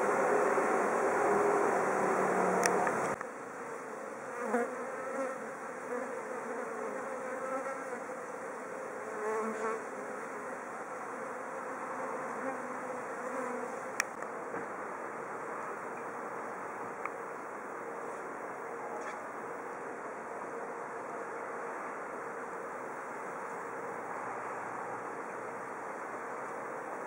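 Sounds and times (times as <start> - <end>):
bees buzzing: 0.0 - 14.1.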